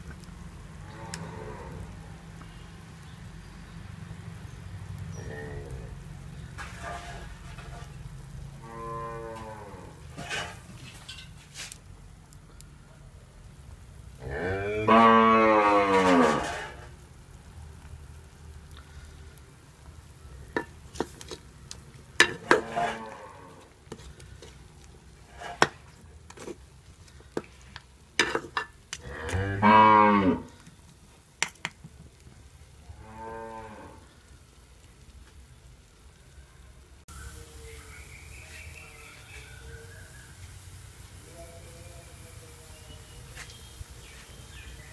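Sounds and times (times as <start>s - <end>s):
cow mooing: 0.8s - 1.8s, 8.6s - 10.0s, 14.2s - 16.6s, 22.5s - 23.7s, 29.0s - 30.6s, 32.9s - 34.1s.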